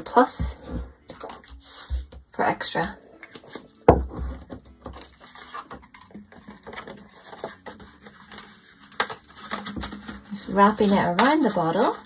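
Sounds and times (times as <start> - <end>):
paper rustling: 3.2 - 12.0.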